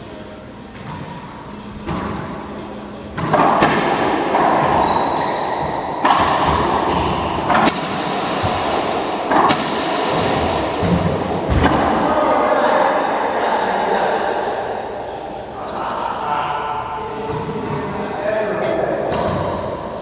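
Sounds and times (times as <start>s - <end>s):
racquetball cracking off racquets and walls: 3.1s - 12.1s.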